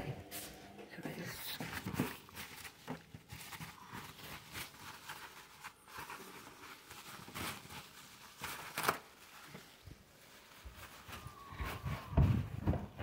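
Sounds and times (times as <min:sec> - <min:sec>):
rustling and scuffing: 0:00.0 - 0:13.0.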